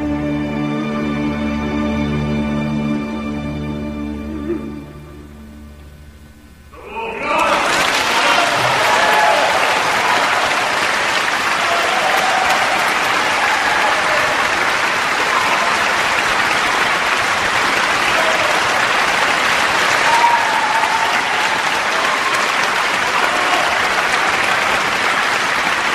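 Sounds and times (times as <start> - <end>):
audience applauding: 7.2 - 25.9.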